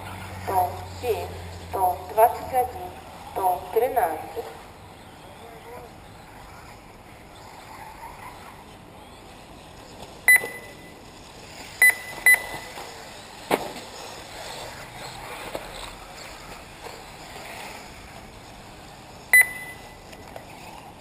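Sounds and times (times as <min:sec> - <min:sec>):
electronic beeps: 0:10.3 - 0:11.0, 0:11.8 - 0:12.8, 0:19.3 - 0:20.0.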